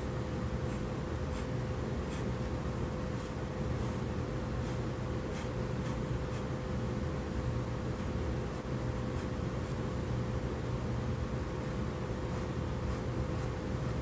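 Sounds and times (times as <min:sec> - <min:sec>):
low background hum: 0:00.0 - 0:14.0
pen scratching on paper: 0:00.6 - 0:06.6, 0:07.3 - 0:09.8, 0:12.2 - 0:14.0.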